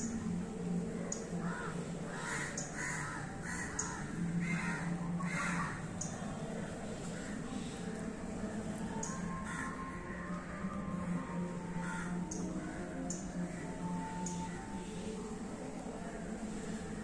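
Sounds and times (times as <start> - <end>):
crows cawing: 1.4 - 5.8, 9.4 - 9.8, 11.8 - 12.2.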